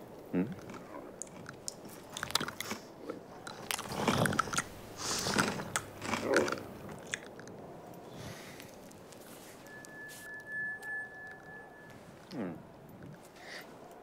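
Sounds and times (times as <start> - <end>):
camel chewing crunching bites: 0.4 - 9.3.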